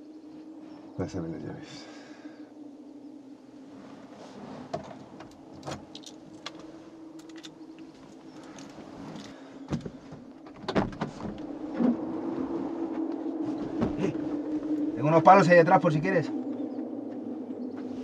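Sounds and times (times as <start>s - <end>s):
steady low hum: 0.0s - 18.0s
keys clinking: 5.6s - 6.6s, 7.2s - 7.6s
car door thumps and clunks: 10.5s - 11.4s.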